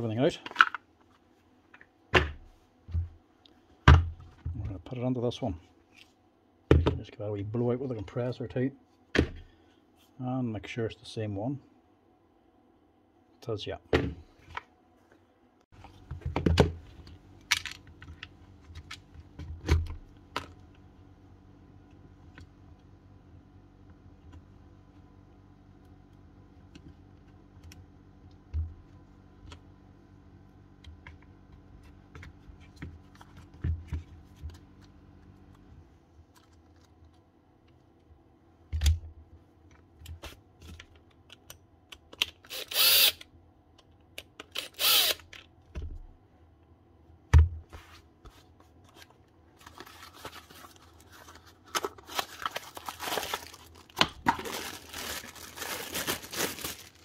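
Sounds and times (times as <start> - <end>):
low steady hum: 0.0 - 57.0
clicks and knocks of parts handled: 15.8 - 20.6, 38.7 - 42.5
rustling and crinkling: 47.7 - 57.0.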